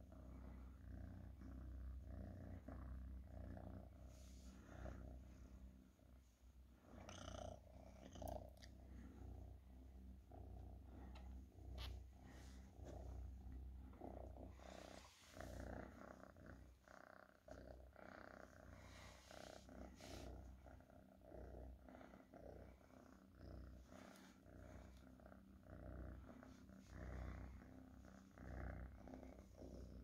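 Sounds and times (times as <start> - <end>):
cat purring: 0.0 - 30.0
soft rustles: 10.6 - 20.7.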